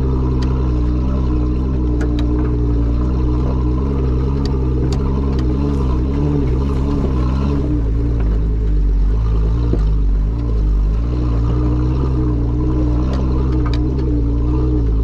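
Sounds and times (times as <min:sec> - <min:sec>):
car engine running: 0:00.0 - 0:15.0
gravel clicking under tires: 0:00.0 - 0:15.0.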